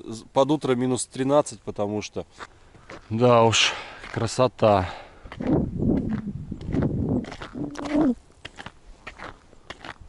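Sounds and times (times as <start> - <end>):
rubber boots stepping on ice: 5.3 - 10.0.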